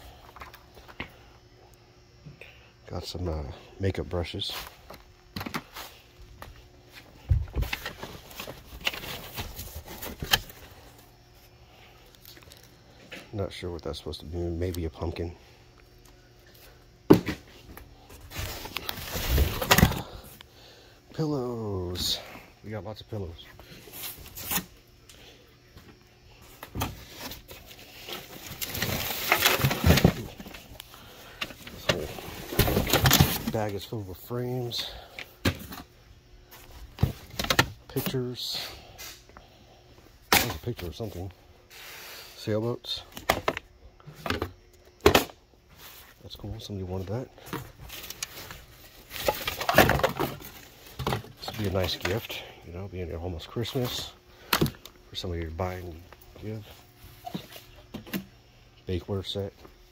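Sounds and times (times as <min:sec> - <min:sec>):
rummaging in cardboard box: 0:07.6 - 0:10.7, 0:18.2 - 0:20.2, 0:26.6 - 0:30.7, 0:31.4 - 0:33.9, 0:47.1 - 0:52.3.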